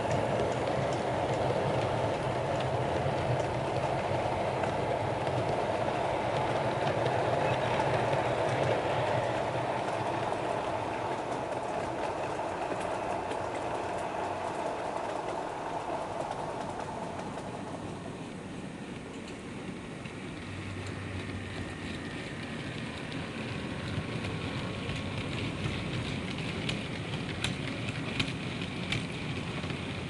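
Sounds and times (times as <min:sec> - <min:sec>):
model train rumbling on track: 0:00.0 - 0:30.0.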